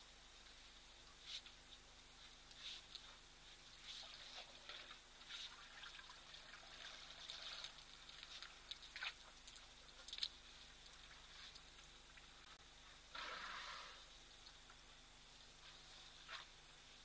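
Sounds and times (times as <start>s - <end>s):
trickling water-like sounds: 2.4s - 17.0s.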